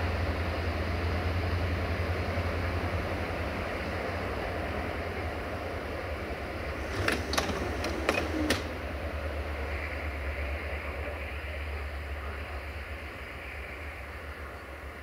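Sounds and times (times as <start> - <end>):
low engine rumble: 0.0 - 15.0
wheels clacking on rail joints: 6.7 - 8.9.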